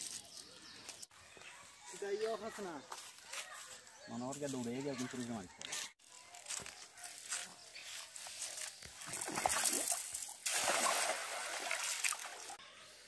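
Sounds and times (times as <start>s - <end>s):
net splashing in water: 9.0s - 12.6s.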